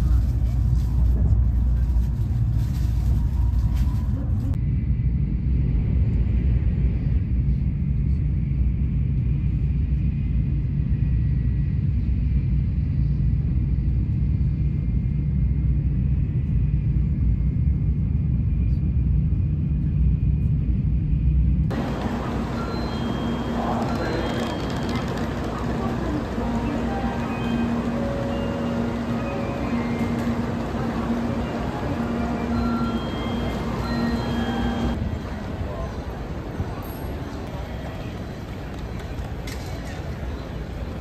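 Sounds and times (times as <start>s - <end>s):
train low rumble: 0.0s - 41.0s
faint steady whine: 20.5s - 35.8s.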